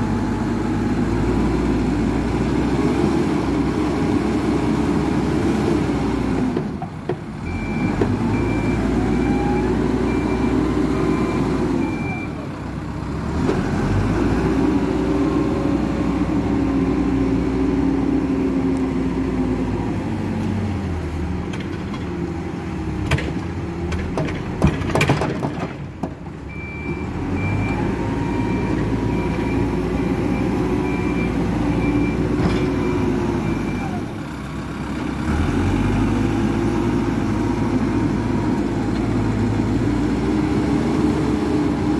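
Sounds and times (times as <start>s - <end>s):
diesel engine working hard: 0.0s - 41.9s
reversing alarm beeping: 7.5s - 12.4s, 26.5s - 34.0s.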